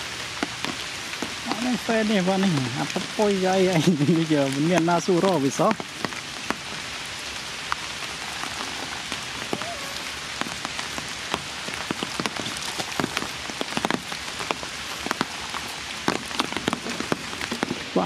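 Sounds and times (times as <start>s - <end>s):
rain falling: 0.0s - 18.0s
raindrops ticking close by: 0.0s - 18.0s.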